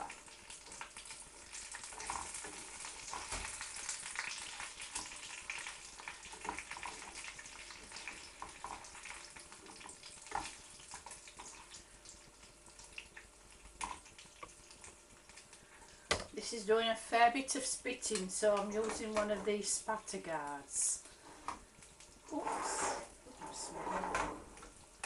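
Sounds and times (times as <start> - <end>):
fritters sizzling in hot oil: 0.0 - 16.1.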